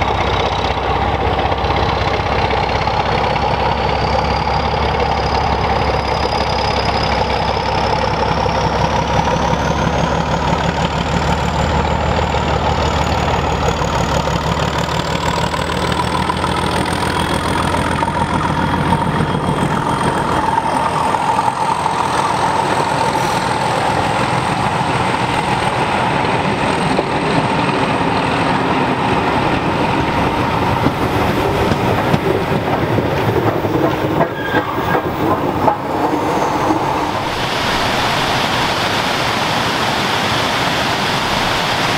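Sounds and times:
diesel locomotive engine: 0.0s - 41.9s
train coaches rumbling on rails: 0.0s - 41.9s.

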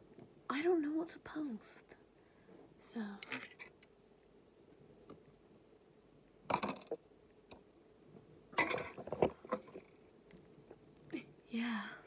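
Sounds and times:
rustling and knocks of handling: 6.5s - 11.0s.

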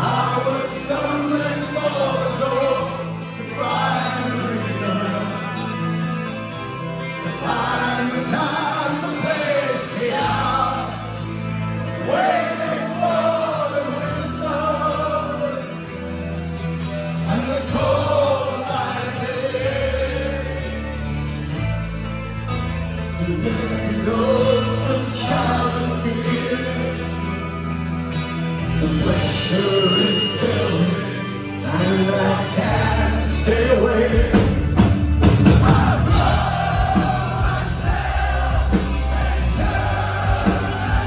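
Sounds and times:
man singing: 0.0s - 6.1s, 7.0s - 16.0s, 17.1s - 21.2s, 23.0s - 27.7s, 28.6s - 38.2s
rock band playing ballad: 0.0s - 41.0s
held bass notes: 30.4s - 41.0s.

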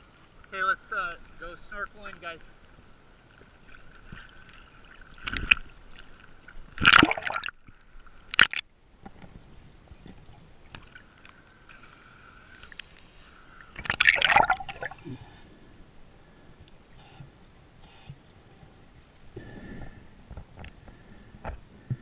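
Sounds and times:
loud water splashes: 13.8s - 15.4s
water sloshing against camera housing: 13.8s - 15.5s.

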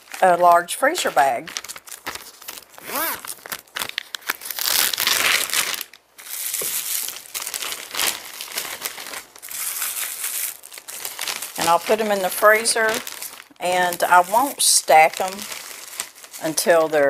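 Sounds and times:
plastic crinkling and rustling: 0.0s - 17.0s
brief pitched vocal sound: 2.8s - 3.2s.

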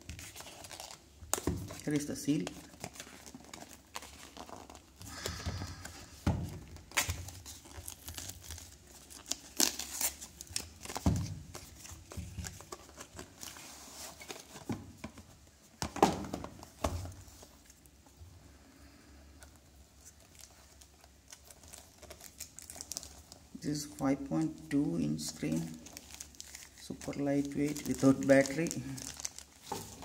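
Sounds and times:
cardboard rustling and scraping: 2.6s - 17.8s, 29.0s - 30.0s.

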